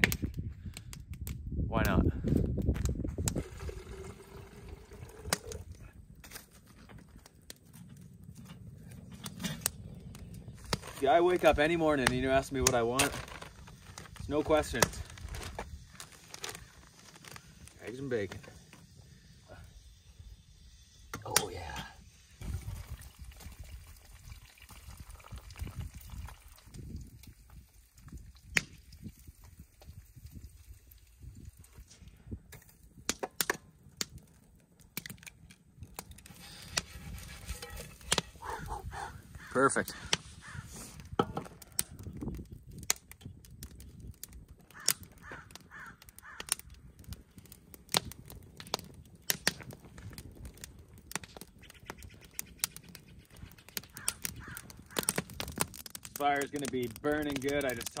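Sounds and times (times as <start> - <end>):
pouring sound: 3.2 - 5.8, 21.4 - 31.9
liquid trickling into mug: 3.4 - 5.6.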